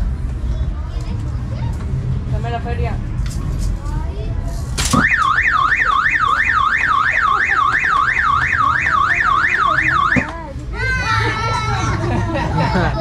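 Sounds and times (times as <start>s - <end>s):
electronic siren warbling: 5.0s - 10.3s.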